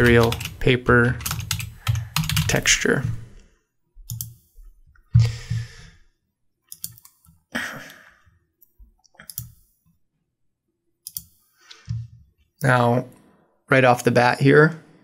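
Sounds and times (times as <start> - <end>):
computer mouse and keyboard clicks: 6.7 - 7.4, 8.6 - 9.6, 11.0 - 12.1.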